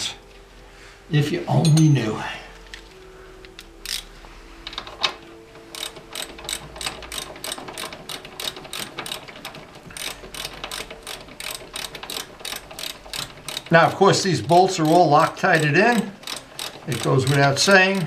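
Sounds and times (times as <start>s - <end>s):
ratchet wrench clicking: 3.6s - 4.1s, 4.7s - 18.0s.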